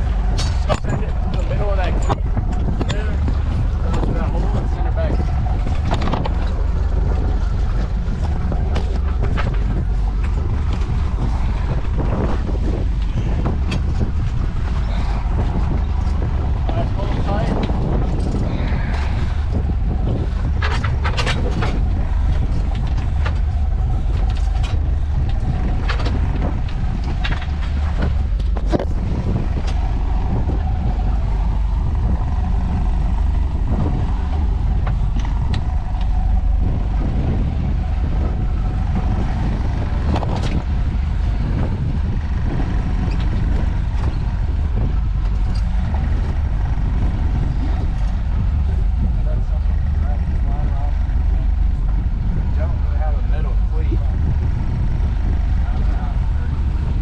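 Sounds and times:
boat engine rumble: 0.0 - 57.0
water: 0.0 - 57.0
wind: 0.0 - 57.0.

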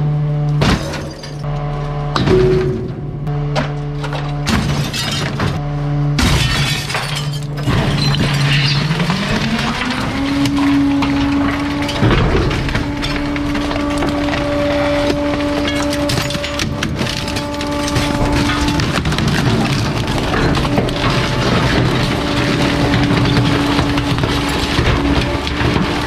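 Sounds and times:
truck engine humming and revving: 0.0 - 26.0
garbage truck crushing waste: 0.5 - 26.0
sharp cracks and breaking: 6.2 - 26.0.

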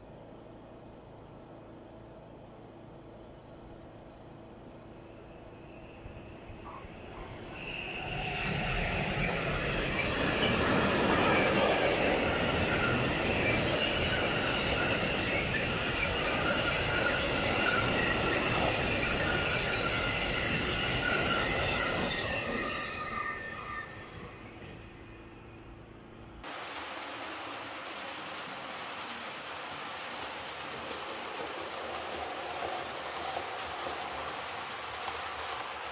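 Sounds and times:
freight train passing: 0.0 - 35.9
wheels rumbling on rail: 0.0 - 35.9
high-pitched wheel squealing: 5.2 - 25.5.

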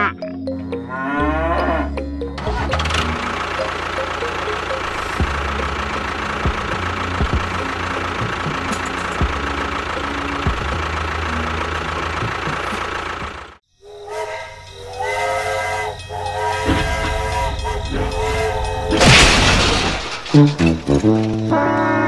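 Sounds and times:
small motor rattling hum: 2.3 - 13.6.

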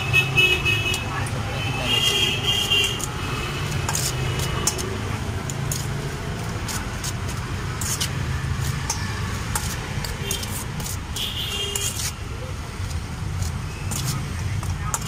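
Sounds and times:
road traffic rumble: 0.0 - 15.0
metal spoon scraping steel bowl: 2.1 - 5.9, 7.7 - 12.2.

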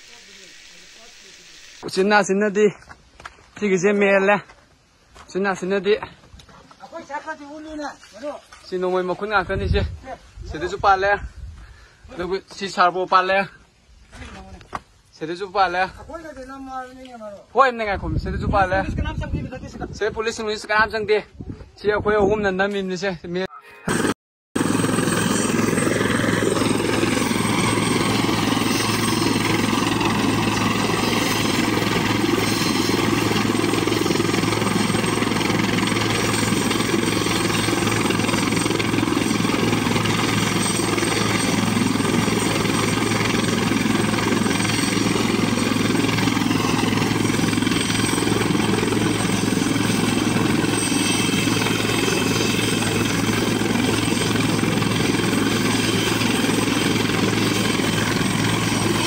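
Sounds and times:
high turbine whine: 0.0 - 2.3, 23.9 - 59.0
helicopter idling: 23.9 - 59.0.

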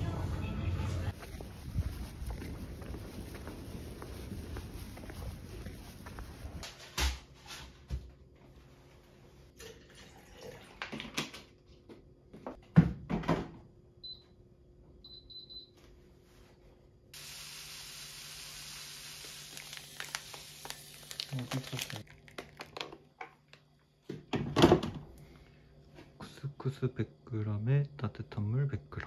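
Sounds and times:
plastic bottle being handled: 19.6 - 23.3.

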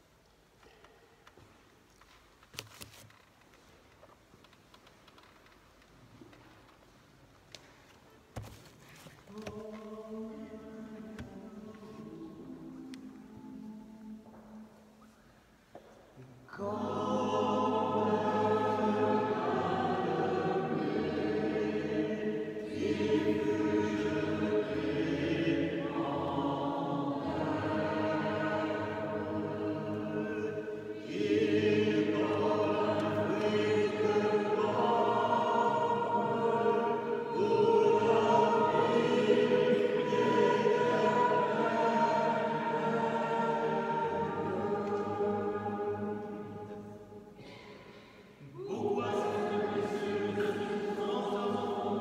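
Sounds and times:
choir singing a hymn: 9.3 - 14.9, 16.5 - 52.0.

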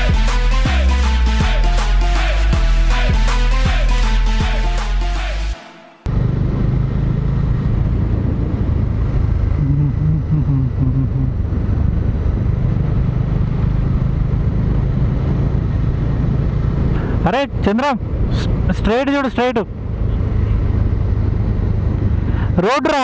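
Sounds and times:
background music: 0.0 - 6.1
wind and road noise: 6.0 - 23.0
motorcycle engine running: 6.1 - 18.8.

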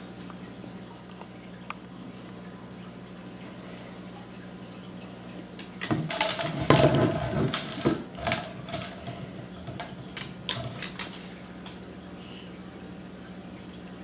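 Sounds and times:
glass jar clattering on wooden floor: 5.8 - 11.2.

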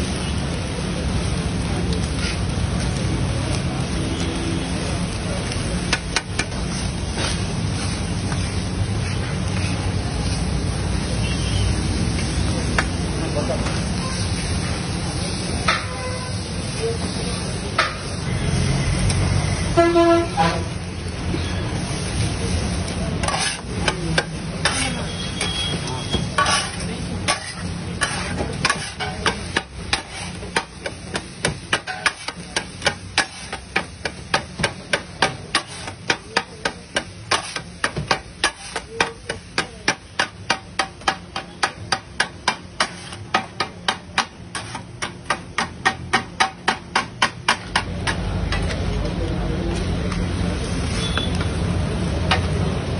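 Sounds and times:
metal blades clanking on griddle: 23.2 - 48.8.

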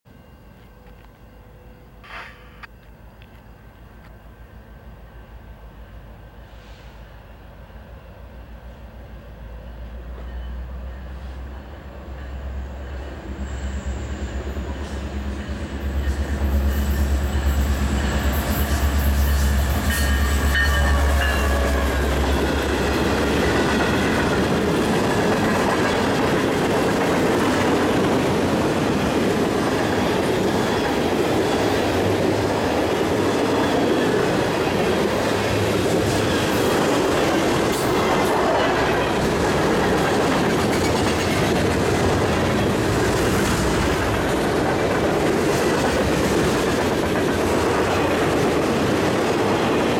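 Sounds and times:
train wheels on rail: 0.1 - 49.9.

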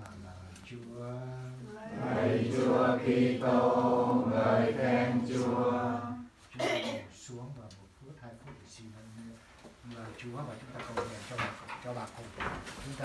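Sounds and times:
group chanting a prayer: 1.0 - 6.4.

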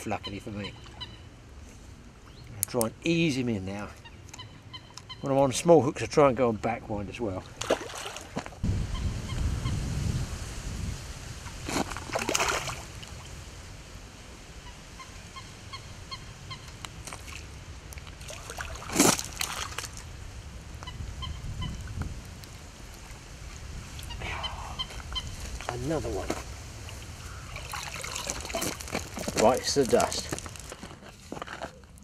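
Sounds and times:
geese honking: 4.0 - 5.3
fish splashing at the surface: 7.6 - 8.5, 11.8 - 13.1, 18.2 - 19.9, 27.5 - 29.3.

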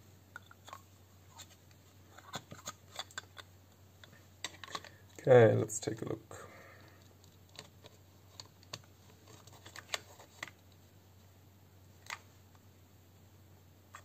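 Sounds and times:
small parts clicking and tapping: 1.4 - 5.2, 6.8 - 10.8.

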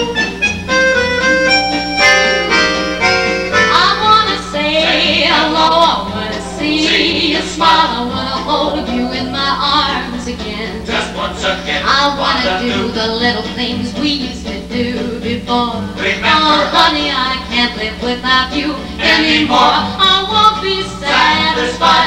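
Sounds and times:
steady low hum: 0.0 - 22.0
warbling instrumental melody: 0.5 - 11.4.

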